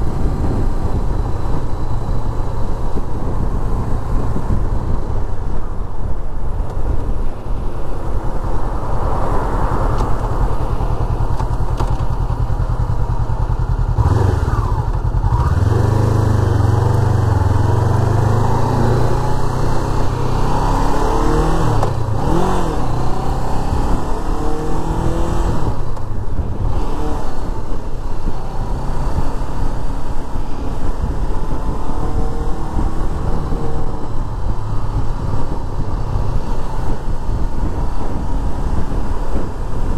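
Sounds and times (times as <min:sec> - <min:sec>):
wind rumble on microphone: 0:00.0 - 0:39.9
motorcycle engine running: 0:10.0 - 0:39.9.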